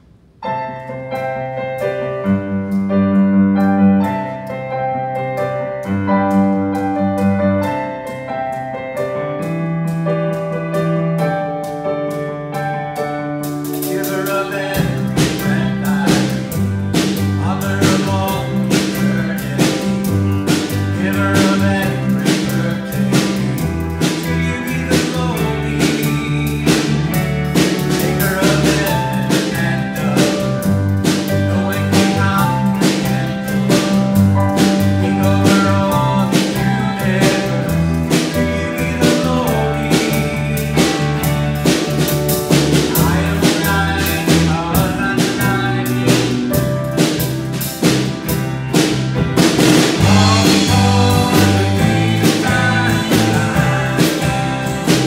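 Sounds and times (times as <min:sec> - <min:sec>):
drum kit: 0:00.0 - 0:55.0
keyboard: 0:00.0 - 0:55.0
piano: 0:00.0 - 0:55.0
acoustic guitars: 0:13.4 - 0:55.0
person singing: 0:13.6 - 0:48.1, 0:49.8 - 0:55.0.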